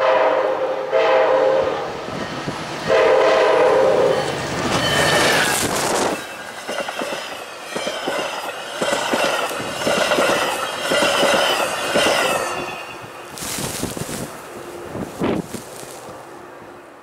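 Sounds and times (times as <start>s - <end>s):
train wheels squealing: 2.0s - 3.0s, 3.6s - 13.6s
train wheels clicking over rail joints: 4.2s - 14.4s
wind noise: 5.2s - 7.2s, 8.9s - 16.8s.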